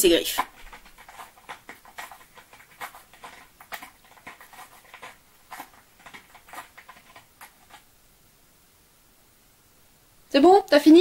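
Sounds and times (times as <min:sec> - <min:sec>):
cat claws scratching: 0:00.0 - 0:07.9.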